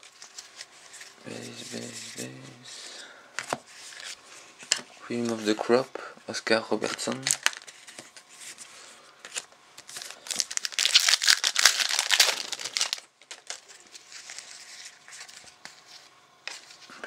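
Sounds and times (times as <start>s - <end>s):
foil wrapper crinkling: 6.8s - 7.7s, 9.3s - 15.6s.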